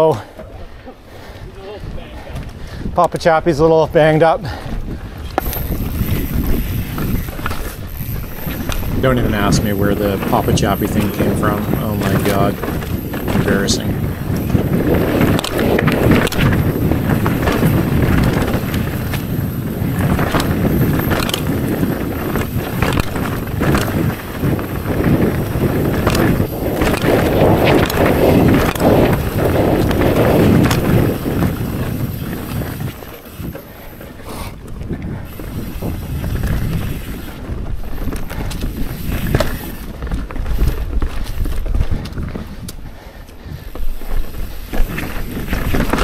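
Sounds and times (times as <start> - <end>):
bike tyres rumbling on dirt: 1.1 - 46.0
bike knocking and clattering: 5.2 - 42.8, 43.5 - 46.0.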